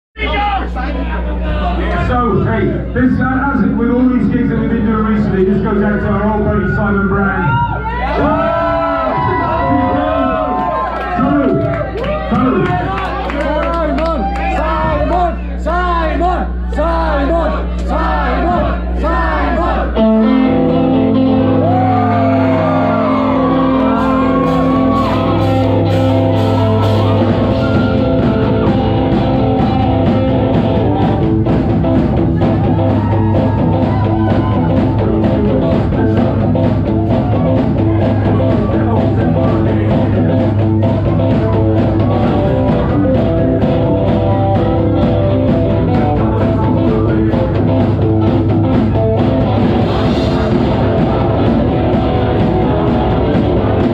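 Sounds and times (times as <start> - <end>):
double bass line: 14.5 - 53.9
live band playing loud: 20.0 - 53.9
sliding electric guitar line: 20.0 - 53.9
fast drum beat: 23.8 - 53.9.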